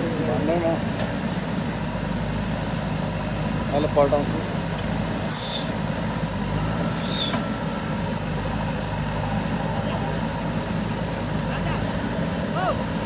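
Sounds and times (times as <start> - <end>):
diesel engine running: 0.0 - 13.0
short high hisses: 5.3 - 5.8, 7.0 - 7.4.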